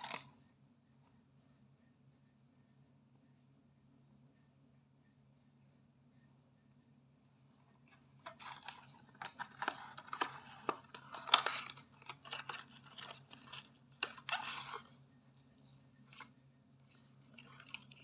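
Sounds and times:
cardboard carton rustling and clicking: 0:08.3 - 0:14.8.

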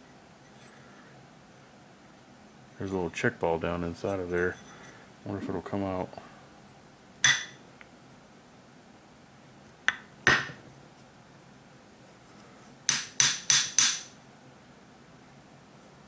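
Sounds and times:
sharp knocks on metal: 0:07.2 - 0:07.6, 0:12.9 - 0:14.1.

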